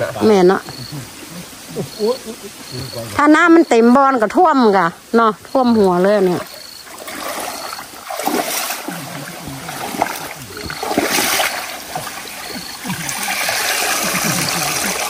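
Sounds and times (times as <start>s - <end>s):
muddy water splashing: 5.5s - 15.0s.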